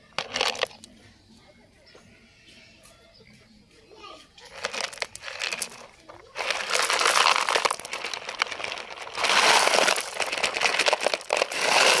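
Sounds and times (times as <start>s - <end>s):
gravel clattering from toy truck: 0.0s - 0.9s, 4.5s - 12.0s.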